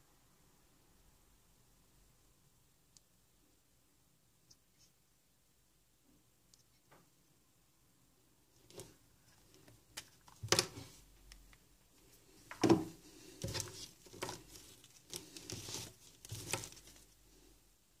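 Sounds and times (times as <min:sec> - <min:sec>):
phone knocks and rustles on table: 0:12.5 - 0:13.0.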